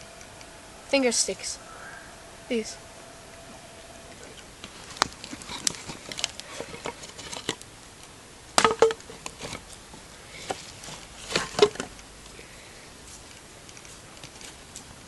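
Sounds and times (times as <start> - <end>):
light clicks and crackles: 13.0 - 15.0.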